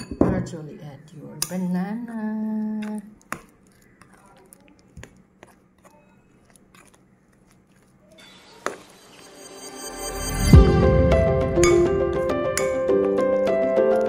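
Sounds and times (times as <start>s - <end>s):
spoon scraping bowl: 1.1s - 10.5s
music: 8.5s - 14.0s.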